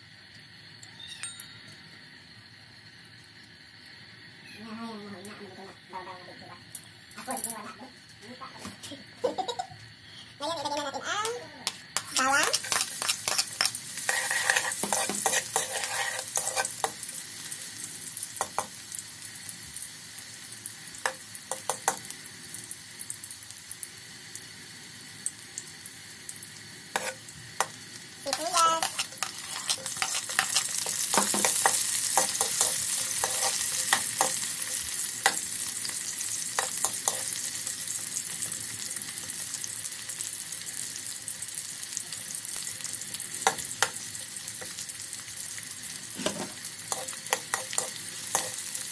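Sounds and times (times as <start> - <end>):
garlic sizzling in oil: 0.0 - 48.9
metal ladle scraping a wok: 12.0 - 16.9, 27.0 - 27.2, 28.3 - 34.4.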